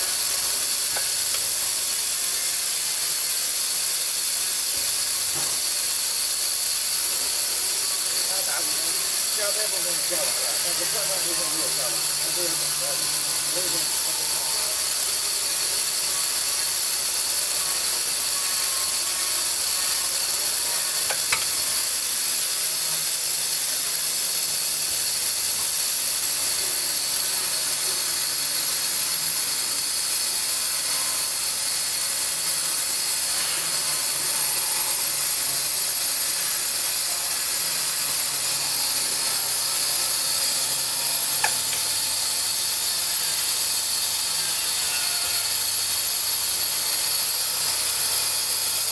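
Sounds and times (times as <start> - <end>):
filling machine running: 0.0 - 48.9.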